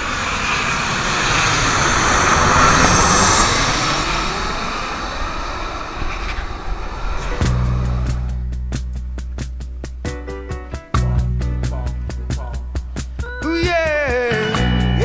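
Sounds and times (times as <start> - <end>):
jet airliner passing overhead: 0.0 - 8.5
music: 7.4 - 15.0.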